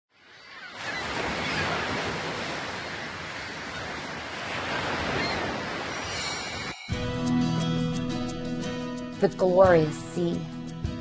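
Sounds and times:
ocean surf washing: 0.2s - 7.0s.

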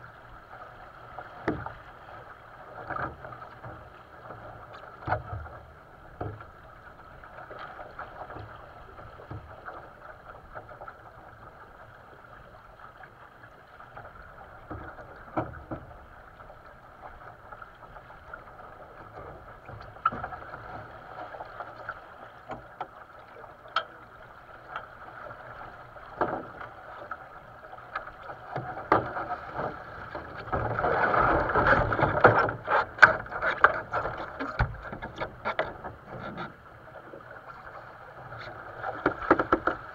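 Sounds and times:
water rushing along boat hull: 0.0s - 39.9s
boat fittings knocking: 31.8s - 36.5s, 39.0s - 39.9s.

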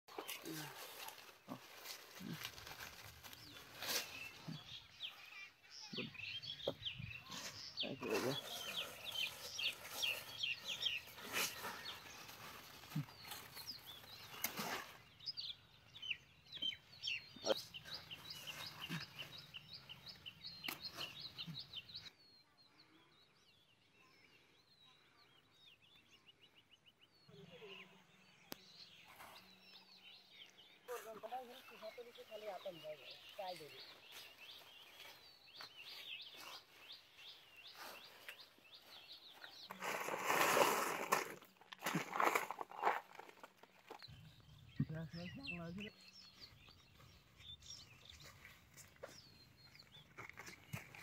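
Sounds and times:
vines and leaves rustling and snapping: 0.1s - 4.6s, 8.5s - 15.0s, 39.7s - 44.1s
small birds chirping: 0.1s - 51.0s.

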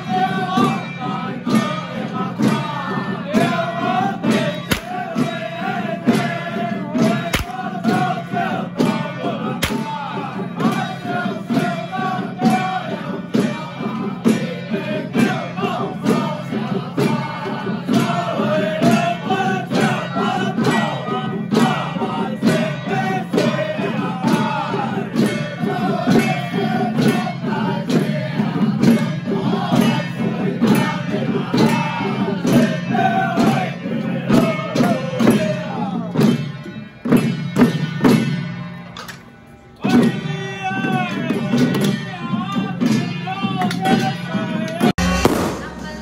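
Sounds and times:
men chanting in unison: 0.0s - 36.4s, 39.8s - 45.0s
hand drums struck with sticks: 2.4s - 14.6s.

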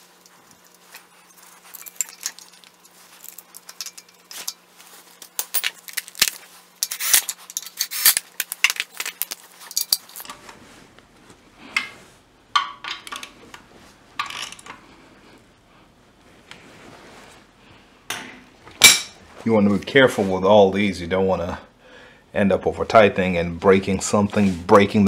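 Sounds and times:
metal tools clinking: 0.0s - 10.3s.

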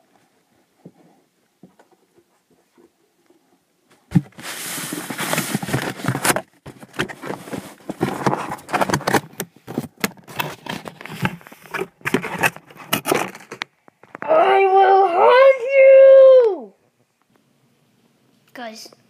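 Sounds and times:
cardboard scraping and rustling: 4.0s - 13.6s.

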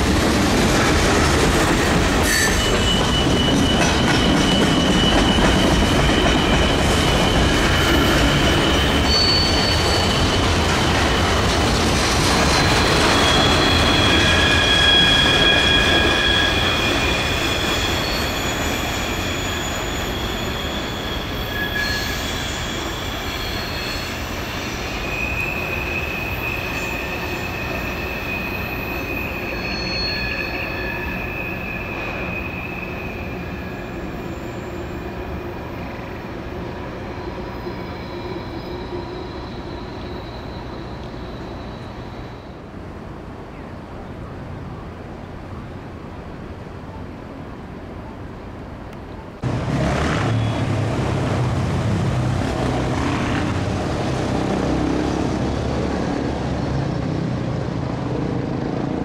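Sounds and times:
freight train rumble: 0.0s - 59.0s
train wheels squealing: 1.2s - 42.8s, 50.0s - 50.9s.

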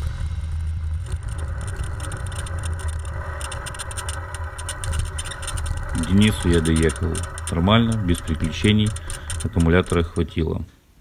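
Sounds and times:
motorcycle engine droning: 0.0s - 10.2s.

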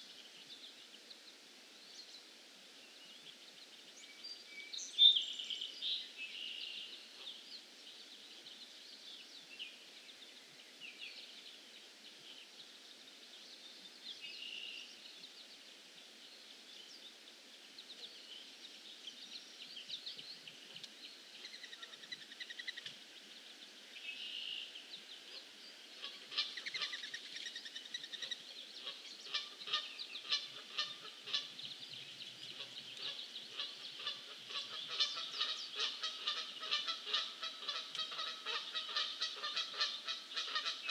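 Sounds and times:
rapid repeated bird calls: 17.8s - 23.2s, 24.1s - 40.9s
birds chirping and calling: 26.0s - 40.9s.

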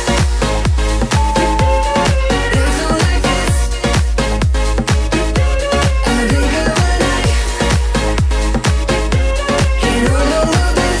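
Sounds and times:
electronic dance music: 1.1s - 2.8s.

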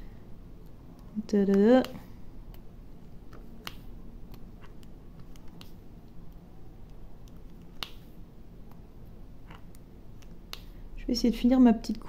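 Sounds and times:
pen clicking and tapping: 3.3s - 8.1s.

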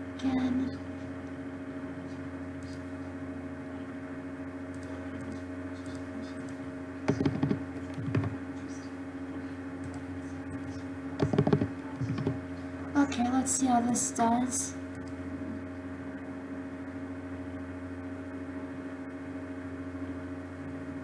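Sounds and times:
low hum with fixed tones: 0.0s - 21.0s
computer keyboard typing: 4.7s - 8.4s, 9.8s - 12.4s.

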